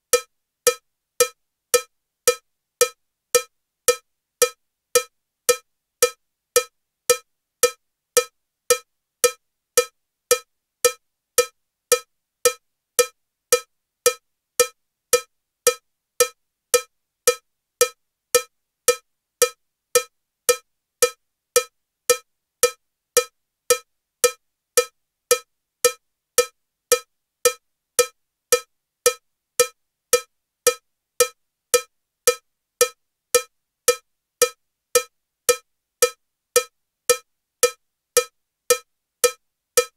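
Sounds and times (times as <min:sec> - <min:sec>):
metronome cowbell strokes: 0:38.7 - 0:39.9.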